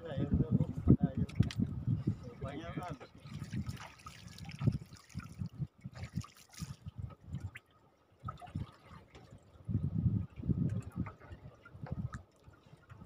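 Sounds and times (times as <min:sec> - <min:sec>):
water lapping against wooden boat: 0:00.6 - 0:13.0.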